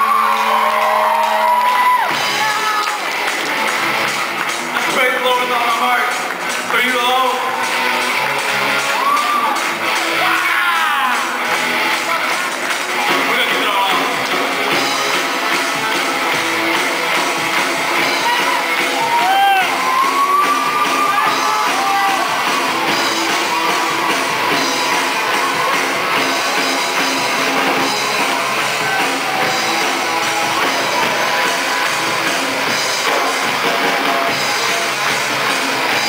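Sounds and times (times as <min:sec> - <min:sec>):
rock band playing: 0:00.0 - 0:36.0.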